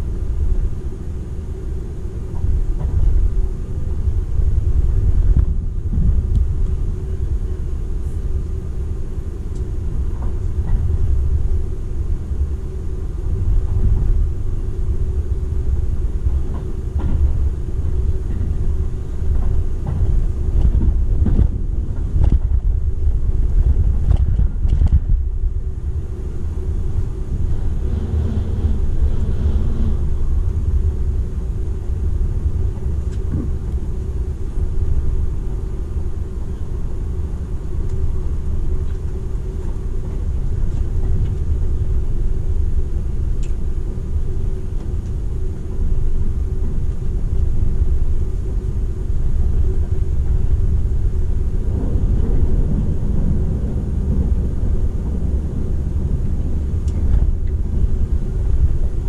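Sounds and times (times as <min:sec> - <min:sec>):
train cabin rumble and hum: 0:00.0 - 0:59.0
train passing by: 0:00.0 - 0:59.0.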